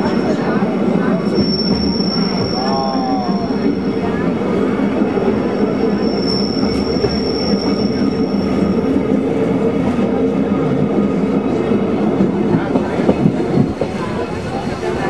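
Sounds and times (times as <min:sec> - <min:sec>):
steel wheel squeal: 0:00.0 - 0:08.9
train wheels rumbling: 0:00.0 - 0:15.0.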